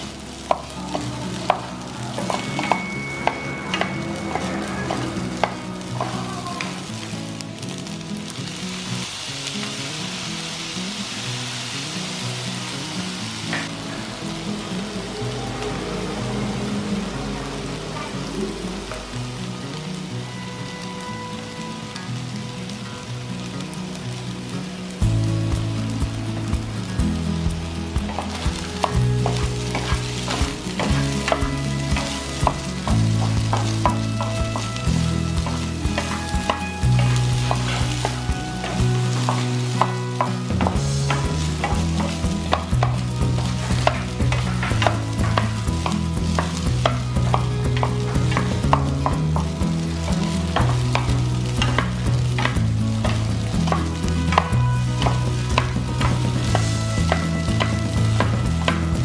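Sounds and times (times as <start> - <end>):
food sizzling in pan: 0.0 - 59.0
spatula scraping frying pan: 28.1 - 49.6.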